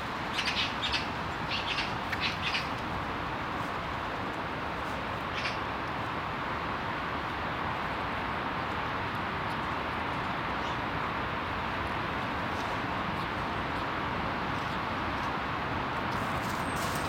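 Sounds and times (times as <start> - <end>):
steady background hum: 0.0 - 17.0
bird calling: 0.3 - 2.8, 5.3 - 5.6.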